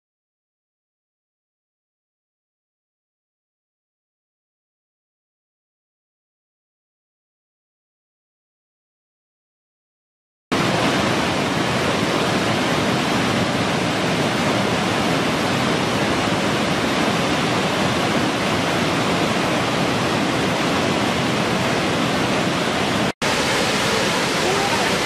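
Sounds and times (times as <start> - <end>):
waterfall rushing over rock: 10.5 - 25.0.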